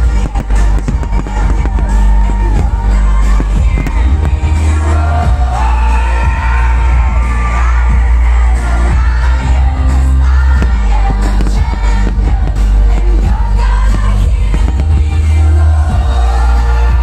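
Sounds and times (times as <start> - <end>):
fireworks bangs: 0.0 - 5.7, 9.3 - 16.1
pop song over loud sound system: 0.0 - 17.0.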